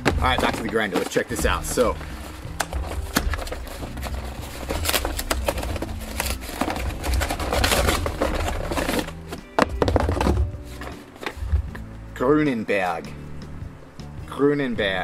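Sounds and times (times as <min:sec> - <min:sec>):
background music with bass line: 0:00.0 - 0:15.0
cardboard box tearing and rustling: 0:00.1 - 0:11.4.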